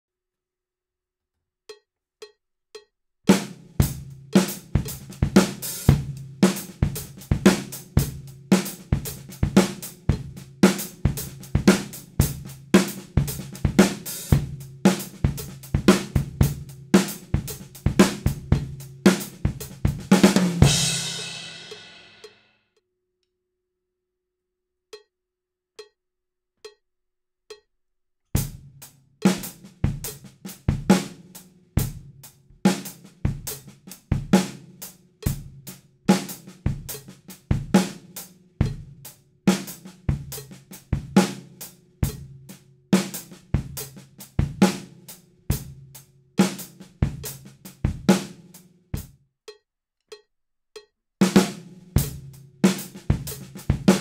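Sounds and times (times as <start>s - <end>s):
faint regular ticks: 1.7s - 2.9s, 26.6s - 26.8s, 27.5s - 28.4s, 49.5s - 51.0s
drum kit funk groove: 3.3s - 22.3s, 28.4s - 49.1s, 51.2s - 54.0s.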